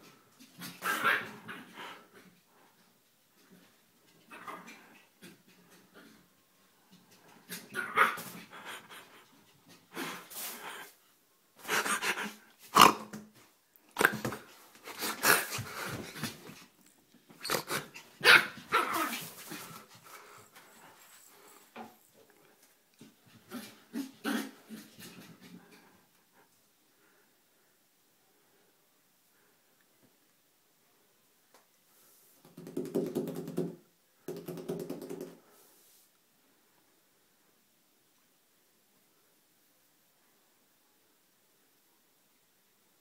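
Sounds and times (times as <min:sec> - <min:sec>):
small dog barking: 0:18.2 - 0:19.1.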